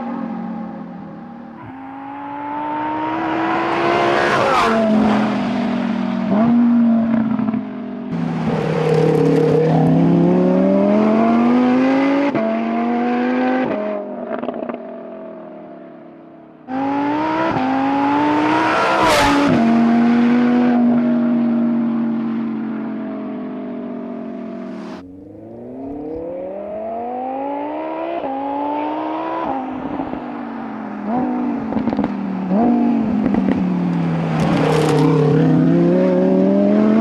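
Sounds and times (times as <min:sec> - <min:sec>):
sports car accelerating through gears: 0:00.0 - 0:15.2, 0:16.7 - 0:37.0.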